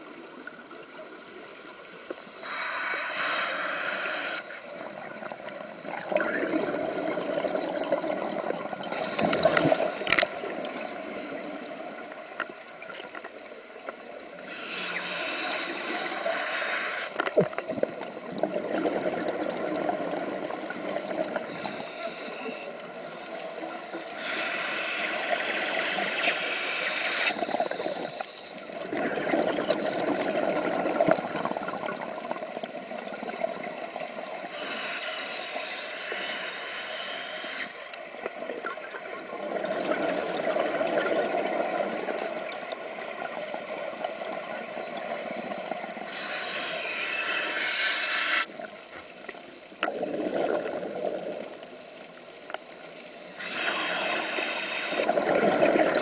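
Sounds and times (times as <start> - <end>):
regulator hiss on inhale: 0.1 - 4.9, 8.8 - 12.5, 14.3 - 18.5, 19.7 - 28.8, 33.2 - 38.2, 43.3 - 49.1, 51.4 - 55.1
exhaled bubbles underwater: 4.6 - 12.2, 17.3 - 23.8, 27.2 - 34.5, 38.2 - 46.1, 49.8 - 52.1, 53.5 - 56.0.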